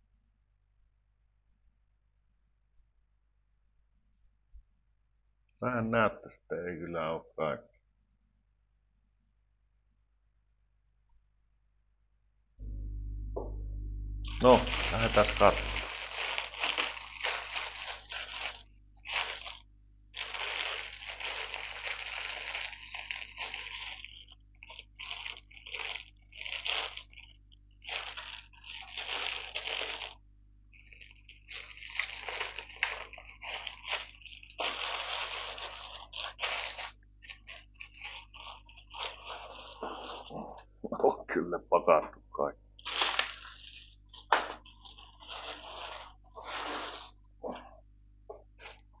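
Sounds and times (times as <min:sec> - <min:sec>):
packaging crinkling and rustling: 0:14.2 - 0:40.7, 0:42.8 - 0:47.2, 0:48.6 - 0:48.9.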